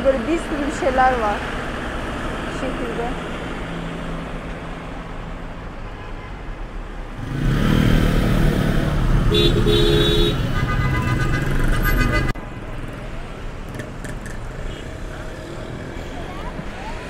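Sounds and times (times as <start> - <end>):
cars and scooters passing: 0.0 - 17.0
car horns honking: 9.0 - 12.4.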